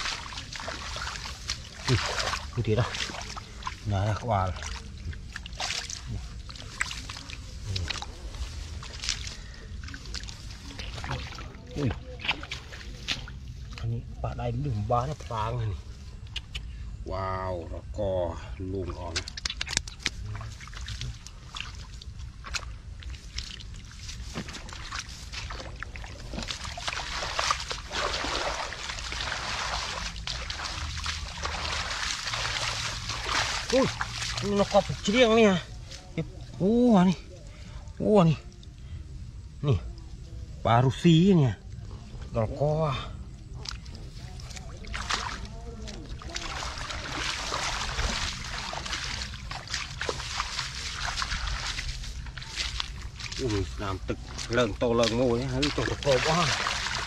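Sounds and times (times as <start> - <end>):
hands splashing in muddy water: 0.0 - 13.8, 18.8 - 36.4, 43.2 - 57.0.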